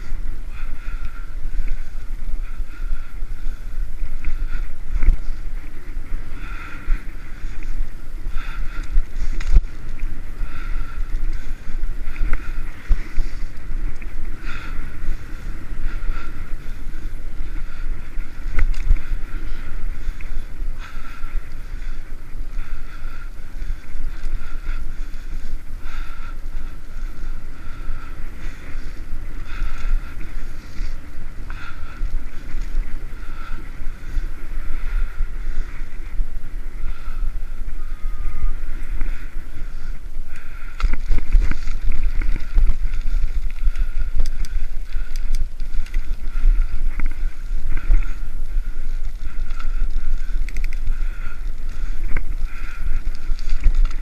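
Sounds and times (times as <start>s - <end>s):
bicycle tyre rumble: 0.0s - 54.0s
wind buffeting microphone: 0.0s - 54.0s.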